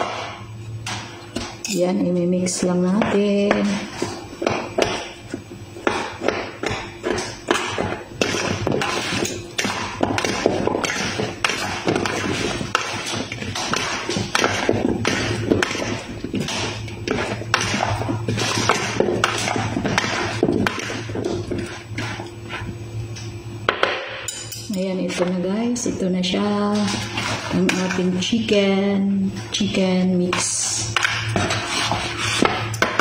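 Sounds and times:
forks scraping plastic bowl: 7.1s - 22.7s, 26.6s - 28.2s, 29.4s - 33.0s.

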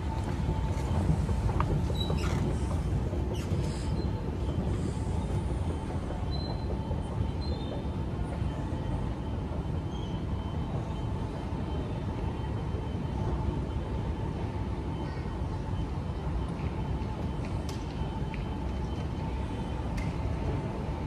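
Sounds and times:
faint steady whines: 0.0s - 21.0s.

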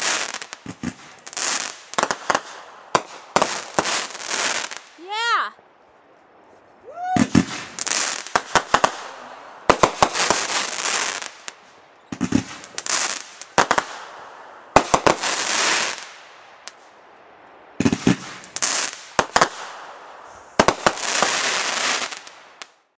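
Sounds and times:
firework crackling hiss: 0.0s - 5.2s, 7.0s - 17.0s, 17.8s - 22.8s
firework launch bangs: 7.2s - 11.5s, 12.1s - 14.1s, 17.8s - 19.8s.

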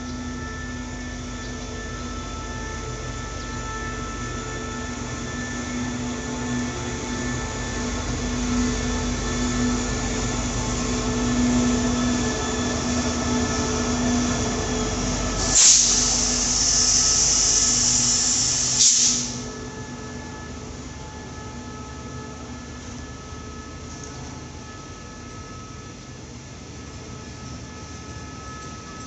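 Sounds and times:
diesel locomotive engine humming: 0.0s - 29.0s
loud air hiss: 15.0s - 19.6s.

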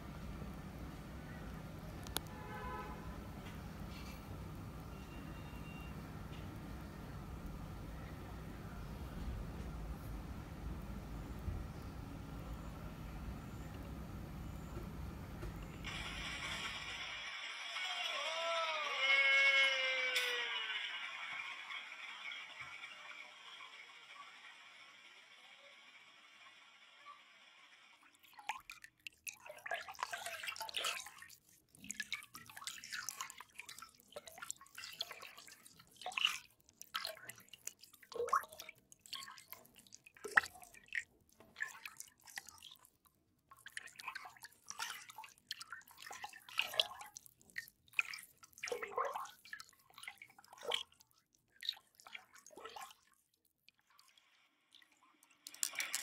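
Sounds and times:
water dripping into water: 28.1s - 56.0s.

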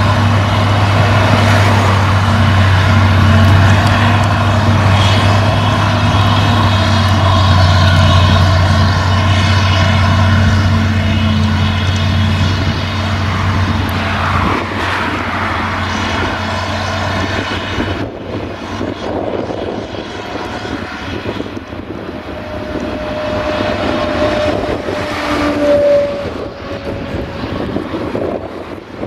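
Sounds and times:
harvester chopping grass: 0.0s - 18.3s
engines droning: 0.0s - 29.0s
high steady whine: 0.0s - 29.0s.

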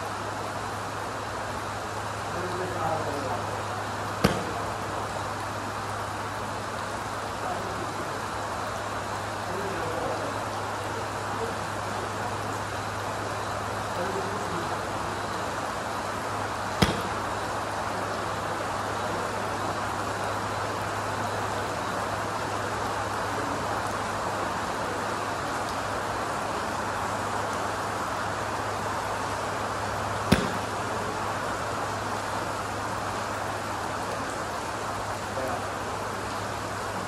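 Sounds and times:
rain hiss: 0.0s - 37.0s
golf club striking ball: 4.2s - 4.7s, 16.8s - 17.4s, 30.3s - 30.9s.

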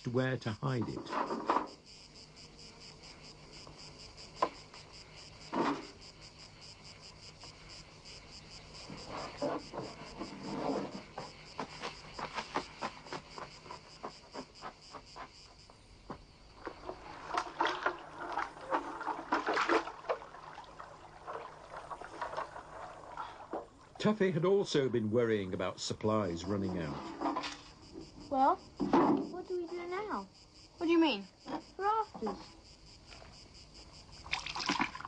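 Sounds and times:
insects trilling: 0.0s - 35.0s
rustling or splashing bursts: 16.6s - 24.0s, 34.2s - 35.0s.

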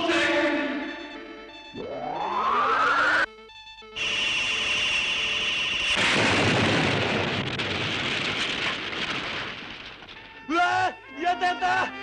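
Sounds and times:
electronic beam-firing tone: 1.7s - 3.3s
large explosion blast: 5.9s - 9.9s.

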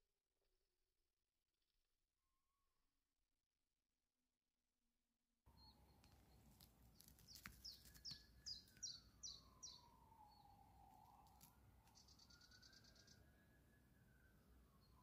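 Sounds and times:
buzzy bird trill: 5.5s - 13.3s
songbird singing: 5.5s - 15.0s.

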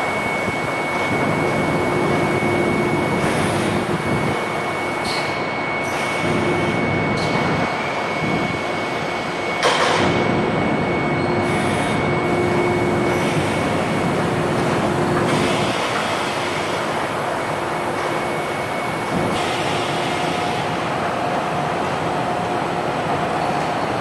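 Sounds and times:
high machine whine: 0.0s - 24.0s
machinery running: 5.6s - 24.0s.

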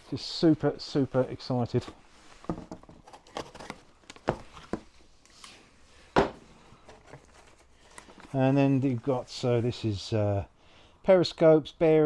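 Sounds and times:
packaging rustling: 3.0s - 5.0s, 6.7s - 8.5s.

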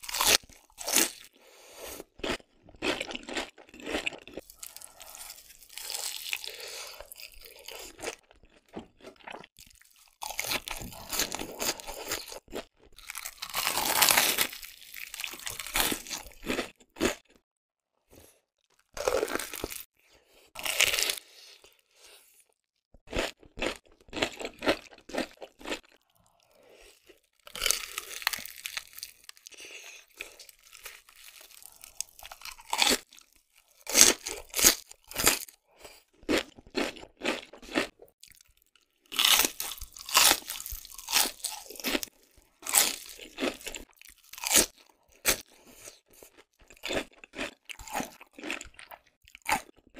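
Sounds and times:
crunching and chewing: 0.0s - 17.4s, 18.2s - 19.9s, 20.5s - 49.9s.

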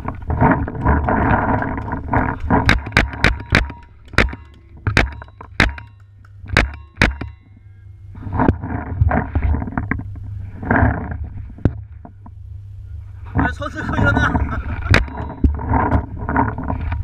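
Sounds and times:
rushing noise on microphone: 13.0s - 17.0s.

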